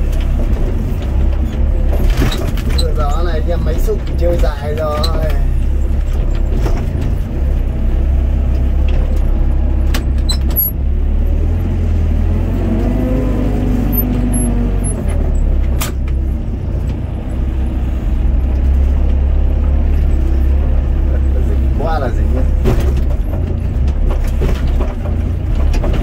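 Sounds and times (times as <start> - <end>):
excavator diesel engine running: 0.0 - 26.0.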